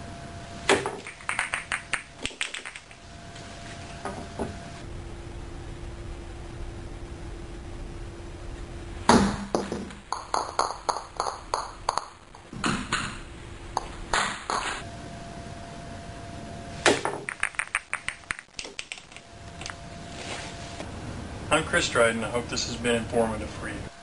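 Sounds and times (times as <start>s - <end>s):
rattle of pool balls clicking: 0.7s - 3.0s, 9.5s - 13.2s, 13.8s - 14.8s, 16.9s - 19.8s.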